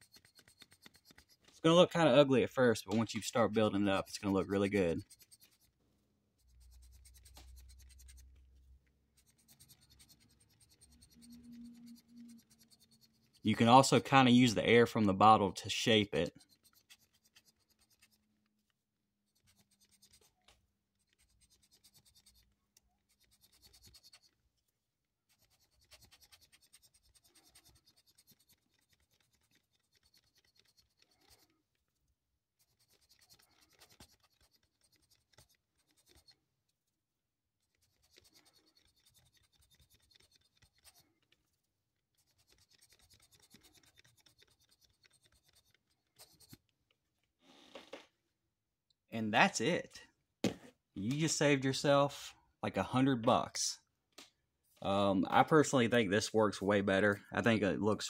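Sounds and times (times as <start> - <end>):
plastic bottle puffing air: 47.4 - 48.1.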